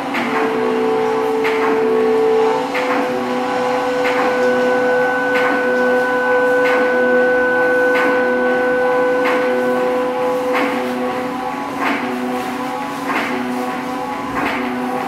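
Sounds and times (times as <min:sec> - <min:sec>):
dense drone: 0:00.0 - 0:12.5
steady held tones: 0:00.5 - 0:11.4.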